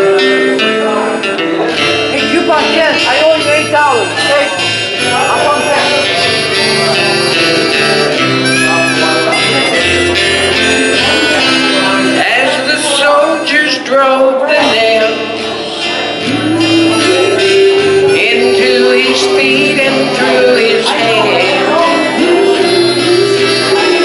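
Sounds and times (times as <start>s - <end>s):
instrumental accompaniment: 0.0s - 24.0s
people singing a hymn: 16.2s - 24.0s.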